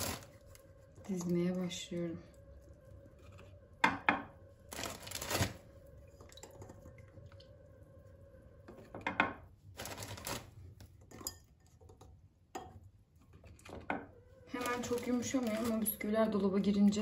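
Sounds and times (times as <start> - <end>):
faint steady hum: 0.0 - 17.0
clinks and scrapes of dishes: 11.0 - 12.8.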